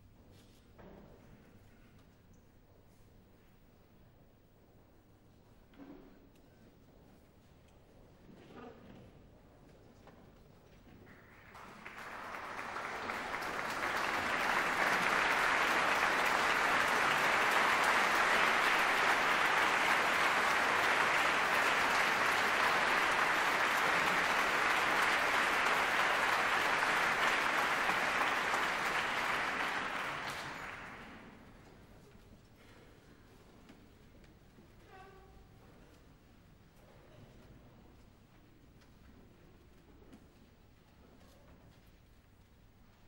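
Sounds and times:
audience applauding: 11.4s - 31.5s.

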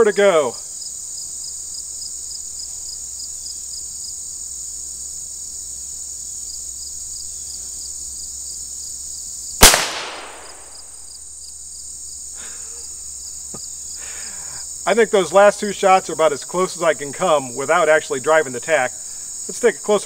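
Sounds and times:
pistol shot: 9.6s - 10.9s.

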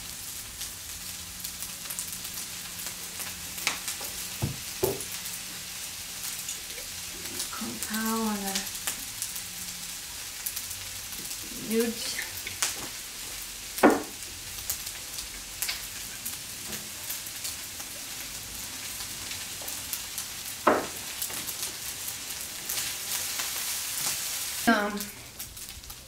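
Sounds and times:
rice sizzling on griddle: 0.0s - 26.0s
sharp knocks: 13.8s - 14.1s.

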